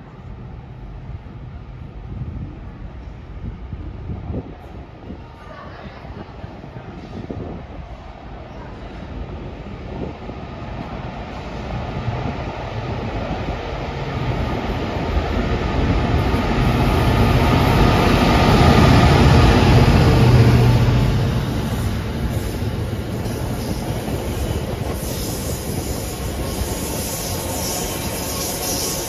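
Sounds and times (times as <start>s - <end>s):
diesel locomotive engine: 0.0s - 29.0s.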